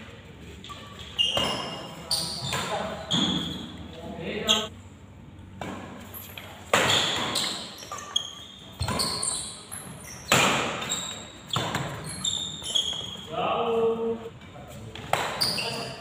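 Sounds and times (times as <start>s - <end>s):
shoes squeaking on court: 0.4s - 4.7s, 5.8s - 13.3s, 15.0s - 16.0s
racket hitting shuttlecock: 5.6s - 8.2s, 10.2s - 10.9s, 15.0s - 15.6s.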